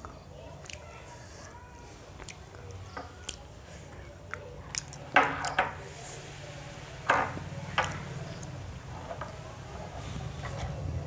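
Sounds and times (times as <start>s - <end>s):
chewing: 0.0s - 1.6s, 2.2s - 5.1s.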